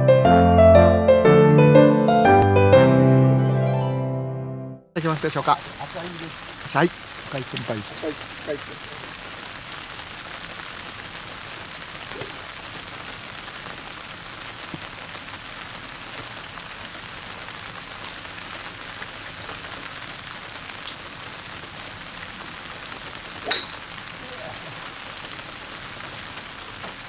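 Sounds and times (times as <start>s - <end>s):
light rain hissing: 5.0s - 27.0s
faint drip ticks: 7.4s - 8.0s.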